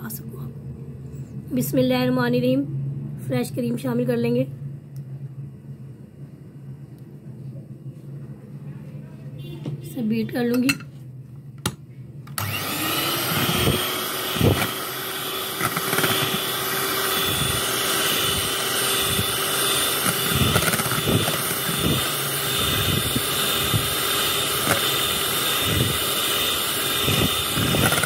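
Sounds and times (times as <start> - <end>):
electric hand mixer whirring: 12.4 - 28.0.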